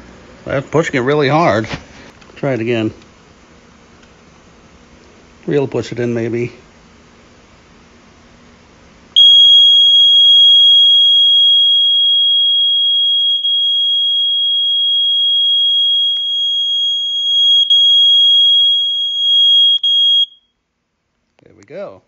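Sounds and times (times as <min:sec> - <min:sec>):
smoke alarm continuous tone: 0:09.1 - 0:20.6.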